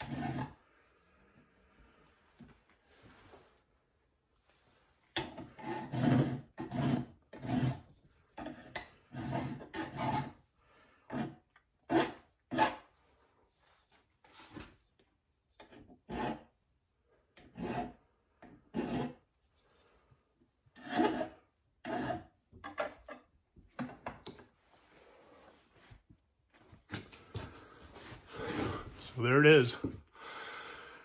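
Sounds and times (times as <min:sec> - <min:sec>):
hand file scraping brass: 0:00.0 - 0:00.6, 0:05.4 - 0:10.4, 0:16.0 - 0:16.5, 0:17.4 - 0:18.0, 0:18.7 - 0:19.2, 0:20.8 - 0:22.4.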